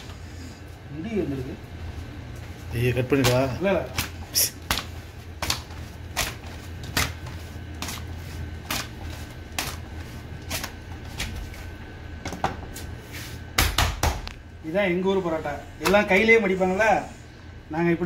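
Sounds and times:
dough slapping on countertop: 3.2 - 11.6, 13.5 - 14.3.

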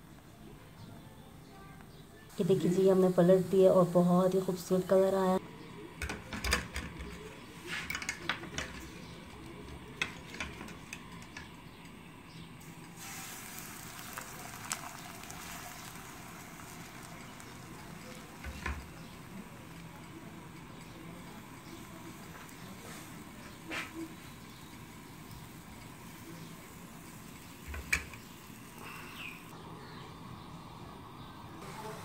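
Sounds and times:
batter sizzling in a frying pan: 12.6 - 29.5.

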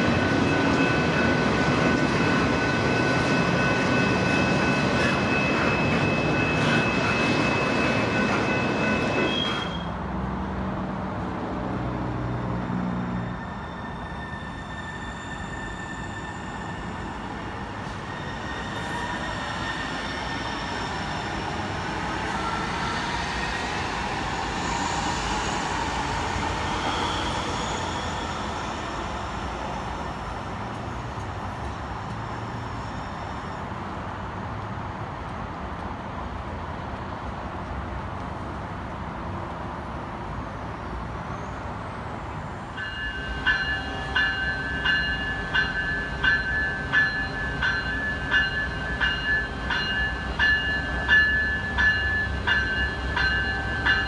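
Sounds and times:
train rumble: 0.0 - 54.0
locomotive bell ringing: 42.8 - 54.0.

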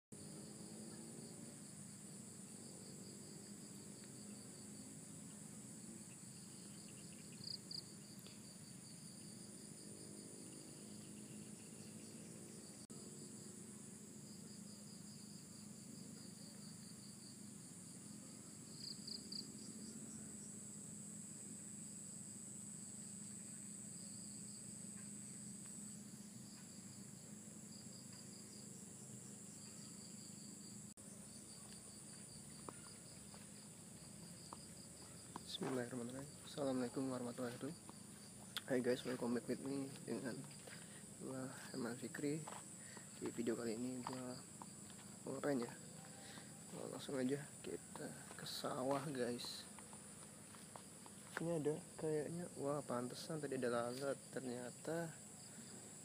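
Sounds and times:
pulsing insect trill: 0.2 - 56.0
high-pitched insect trilling: 4.0 - 13.5, 14.3 - 56.0.

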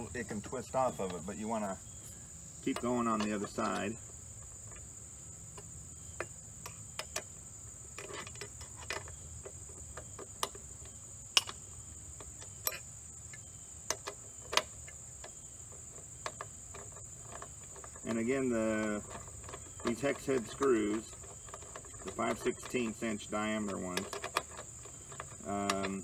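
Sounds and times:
light metallic clicks and taps: 2.6 - 4.0.

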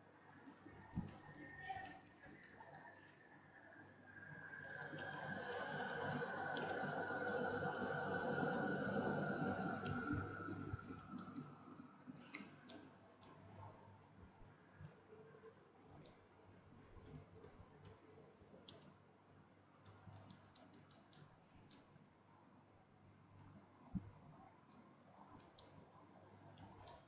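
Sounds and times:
keyboard keys clicking: 0.4 - 3.2, 4.8 - 11.6, 18.6 - 18.9, 19.8 - 21.8, 26.6 - 27.0.

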